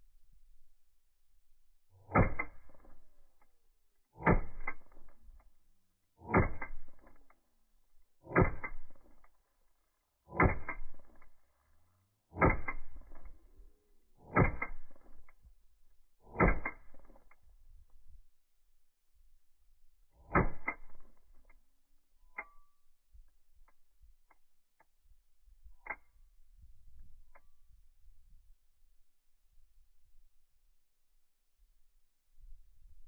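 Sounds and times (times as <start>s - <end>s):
slowed-down pistol shots: 2.0s - 3.6s, 4.2s - 5.6s, 6.2s - 7.4s, 8.2s - 9.4s, 10.3s - 11.4s, 12.3s - 13.6s, 14.2s - 15.4s, 16.3s - 17.4s, 20.2s - 21.4s.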